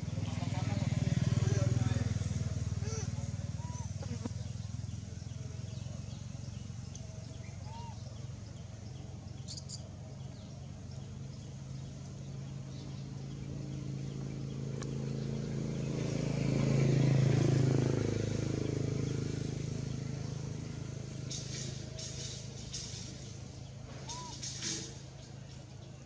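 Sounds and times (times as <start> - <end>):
vehicle engine running: 0.0 - 26.0
faint high chirps: 9.4 - 10.0.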